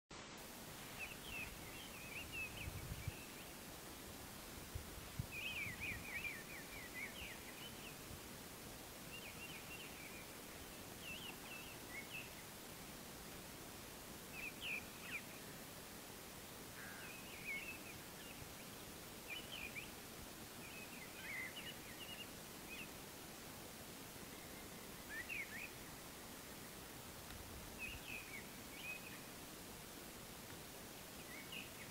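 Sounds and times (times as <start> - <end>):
faint outdoor hiss: 0.1 - 31.9
birds chirping: 24.2 - 26.9, 27.7 - 29.5, 30.9 - 31.9.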